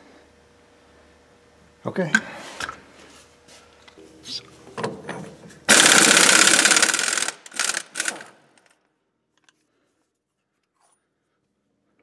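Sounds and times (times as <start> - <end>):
impact wrench hammering: 5.7 - 8.3.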